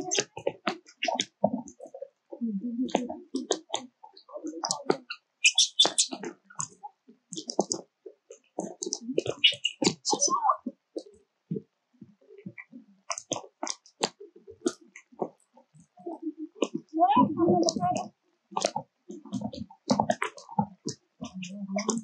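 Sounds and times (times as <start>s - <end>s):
sharp clicks and crackles: 2.9s - 10.4s, 11.0s - 16.0s
low voices murmuring: 15.9s - 19.7s.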